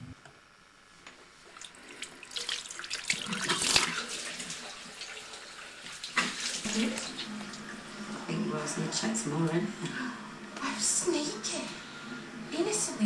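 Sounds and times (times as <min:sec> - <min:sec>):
tap running into basin: 0:01.6 - 0:07.7.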